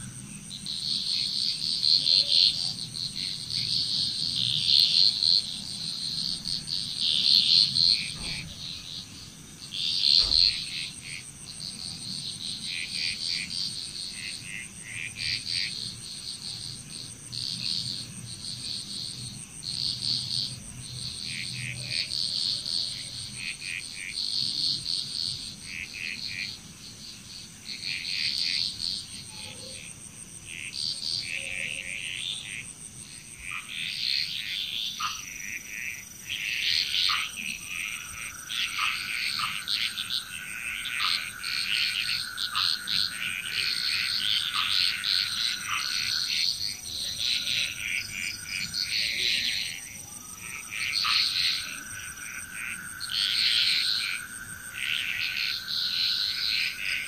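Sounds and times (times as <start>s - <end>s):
frogs calling: 0.0s - 57.0s
low thump: 8.0s - 8.8s, 10.1s - 10.8s.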